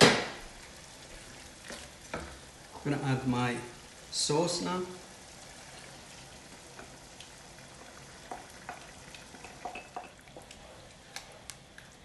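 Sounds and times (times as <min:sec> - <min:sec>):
food frying in a pan: 0:00.0 - 0:12.0
spatula tapping pan: 0:08.2 - 0:10.4.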